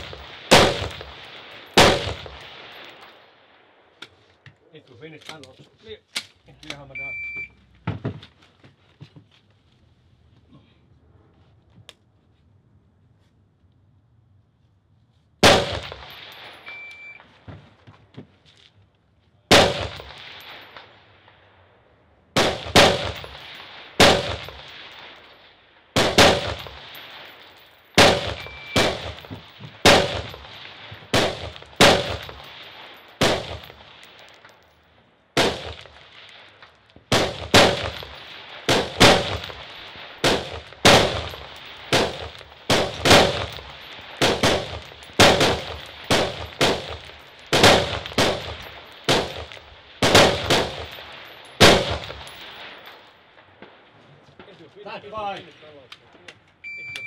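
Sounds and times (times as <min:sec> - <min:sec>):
rifle shots with ringing echo: 0:00.0 - 0:04.0, 0:15.4 - 0:17.4, 0:19.5 - 0:34.6, 0:35.3 - 0:54.6.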